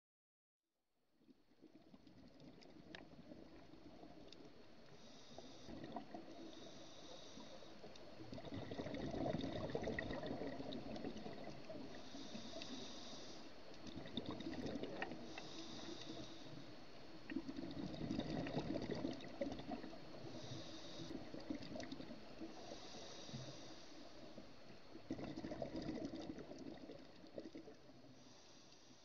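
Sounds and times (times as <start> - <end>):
diver breathing through regulator: 4.9 - 13.6, 14.6 - 16.8, 19.8 - 24.5, 28.0 - 29.0.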